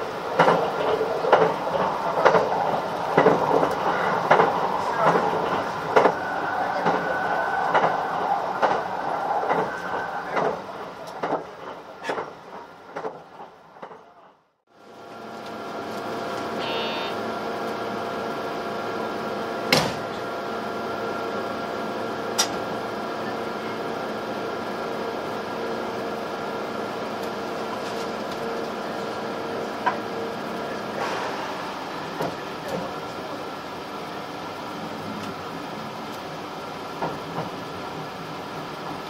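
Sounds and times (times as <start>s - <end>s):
train equipment hum: 0.0s - 39.0s
short high beep: 16.6s - 17.2s.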